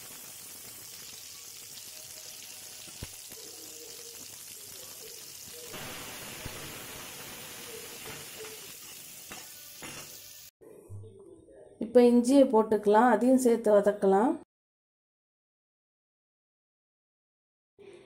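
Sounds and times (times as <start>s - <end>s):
onions sizzling in oil: 0.0s - 10.6s.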